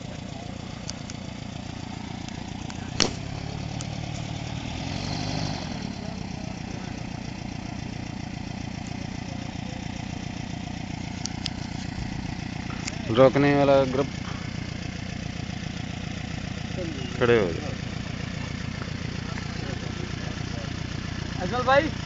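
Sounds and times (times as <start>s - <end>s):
boat diesel engine running: 0.0s - 22.0s
sharp click: 3.0s - 3.2s.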